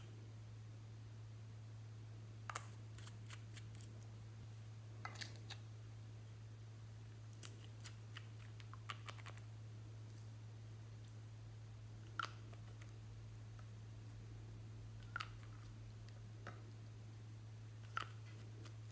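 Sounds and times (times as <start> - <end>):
faint low hum: 0.0 - 18.9.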